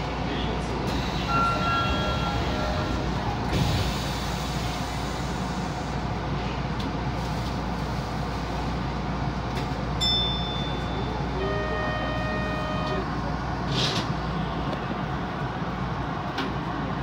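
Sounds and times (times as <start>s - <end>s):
subway train rumbling in tunnel: 0.0s - 17.0s
brief high tone: 10.0s - 13.0s.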